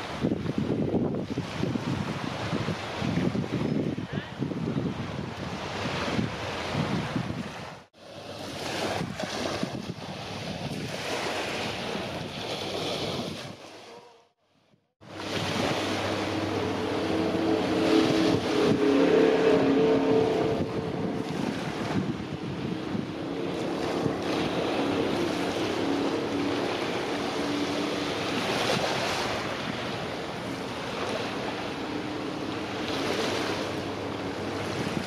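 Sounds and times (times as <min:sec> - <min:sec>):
small waves at shore: 0:00.0 - 0:14.1, 0:15.0 - 0:35.0
wind on microphone: 0:00.0 - 0:14.2, 0:15.0 - 0:35.0
steady droning hum: 0:15.0 - 0:35.0.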